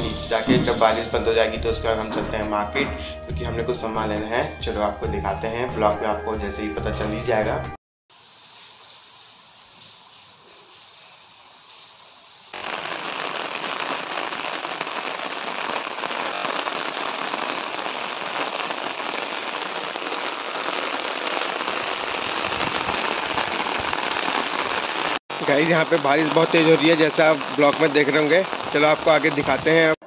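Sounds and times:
heavy rain: 8.1s - 30.0s.

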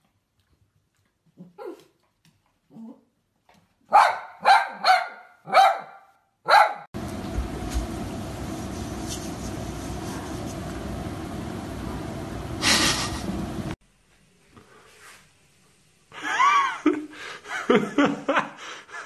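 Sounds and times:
small dog barking: 3.9s - 6.9s
steady background hum: 7.0s - 13.8s.

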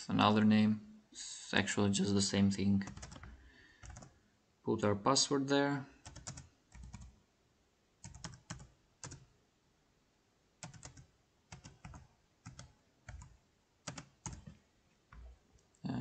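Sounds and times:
faint keyboard typing: 2.8s - 4.2s, 5.9s - 7.2s, 8.0s - 9.3s, 10.6s - 15.8s.

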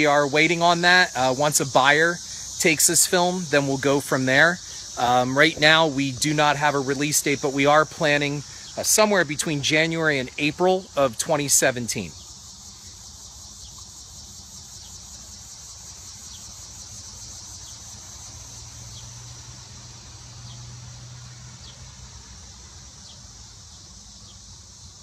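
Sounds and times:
high-pitched insect chorus: 0.0s - 25.0s.

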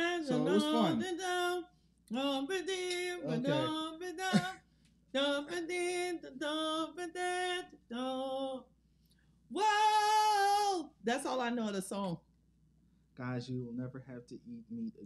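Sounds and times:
person singing unaccompanied: 0.0s - 4.6s, 5.2s - 8.7s.

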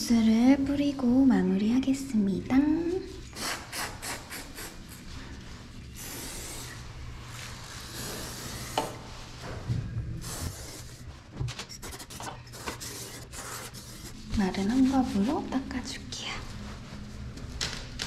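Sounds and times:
aerosol spray hissing bursts: 3.4s - 4.8s, 6.0s - 6.8s.

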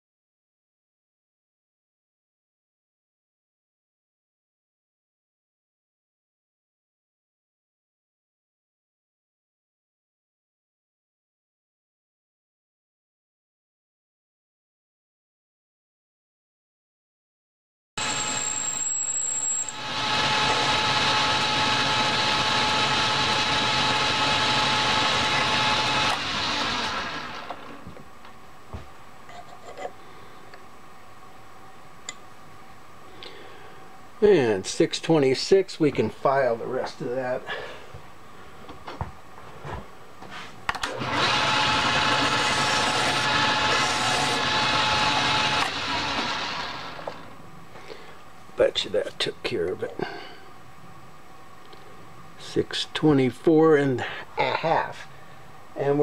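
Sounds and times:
metal lathe whine: 18.0s - 27.7s, 40.9s - 47.3s.

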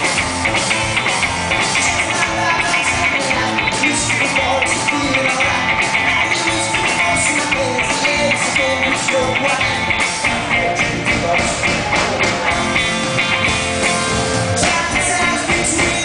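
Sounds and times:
rock band playing live: 0.0s - 16.0s.

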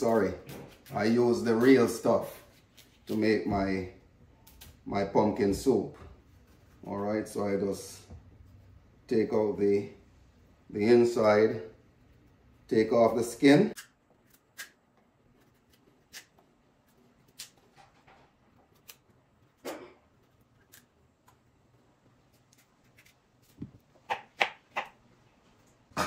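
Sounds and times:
knife scraping pumpkin skin: 13.2s - 17.8s, 22.2s - 25.0s.

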